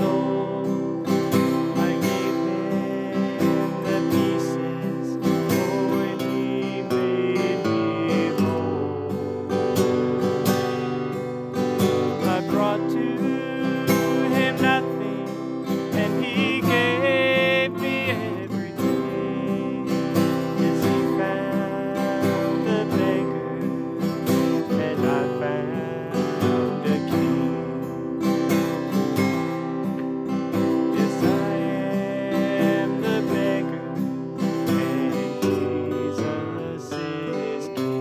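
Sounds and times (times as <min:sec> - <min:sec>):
acoustic guitar strumming: 0:00.0 - 0:38.0
man singing: 0:00.0 - 0:38.0.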